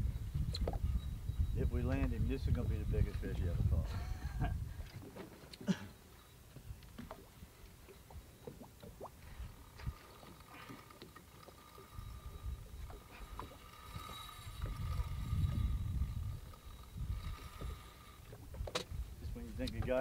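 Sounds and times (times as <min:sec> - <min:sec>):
fishing reel drag whining: 0:00.0 - 0:04.0, 0:05.8 - 0:20.0
water lapping against boat hull: 0:00.3 - 0:20.0
light clicks: 0:19.6 - 0:20.0.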